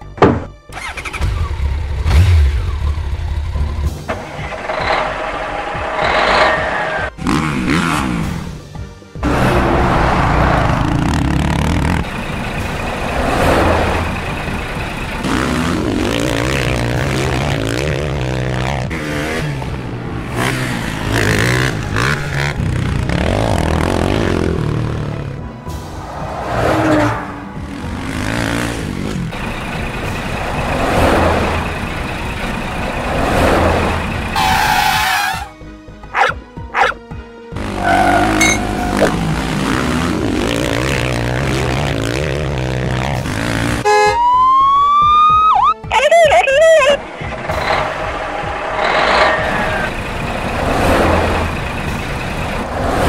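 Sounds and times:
vehicle engine: 0.0s - 44.9s, 45.6s - 53.0s
background music: 0.0s - 53.0s
dog barking: 36.1s - 37.0s.

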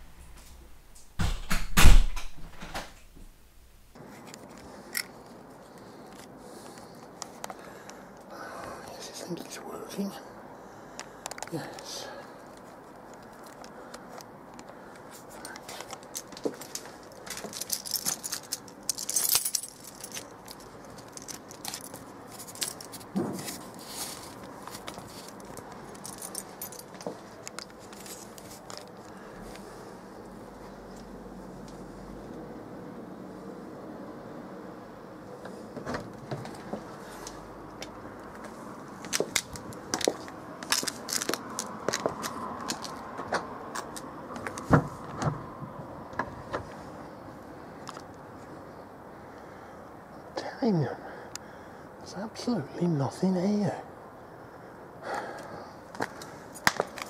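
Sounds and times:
metal gate bolt jingling: 16.1s - 23.0s.

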